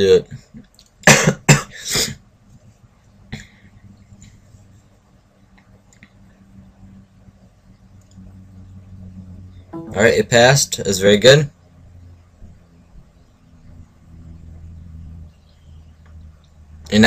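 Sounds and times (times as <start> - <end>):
low steady hum: 2.3 - 17.0
faint ticks: 5.5 - 6.4, 7.9 - 8.4
short sharp noise: 9.8 - 10.3.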